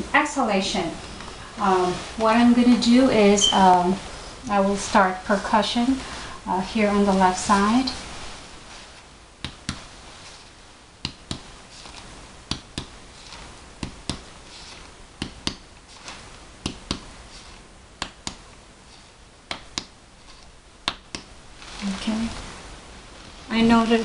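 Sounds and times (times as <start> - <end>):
fingers tapping on back: 11.0 - 11.5, 12.5 - 13.0, 13.8 - 14.3, 15.2 - 15.7, 16.6 - 17.1, 19.5 - 20.0, 20.8 - 21.3.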